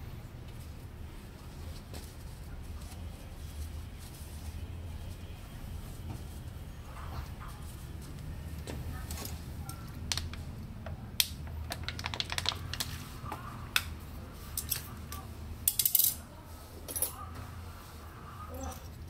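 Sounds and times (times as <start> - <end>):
small metal parts clinking: 15.6 - 16.2.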